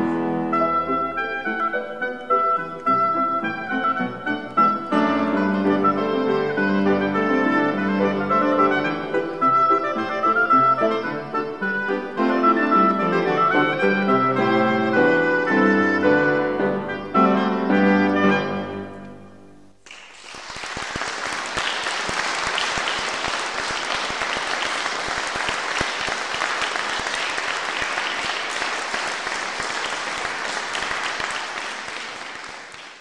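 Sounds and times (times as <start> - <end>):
oboe and piano playing: 0.0 - 19.6
audience applause: 19.8 - 33.0.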